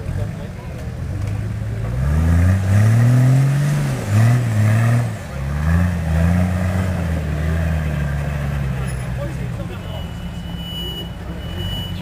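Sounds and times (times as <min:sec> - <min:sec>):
suv engine revving hard: 0:01.9 - 0:08.5.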